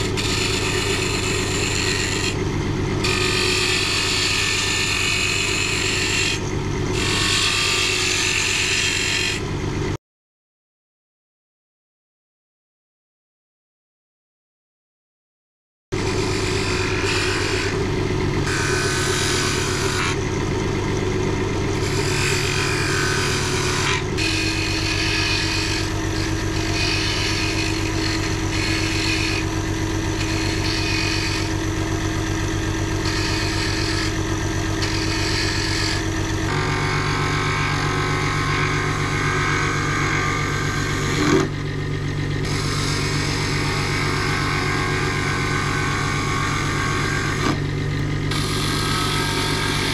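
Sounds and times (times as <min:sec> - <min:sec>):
lathe motor humming: 0:00.0 - 0:09.8, 0:16.0 - 0:49.9
cutter hissing on spinning wood: 0:21.8 - 0:38.3.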